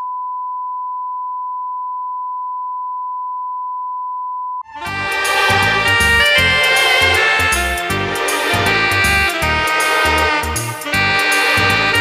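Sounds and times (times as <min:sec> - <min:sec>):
loud music with a beat: 0:04.7 - 0:12.0.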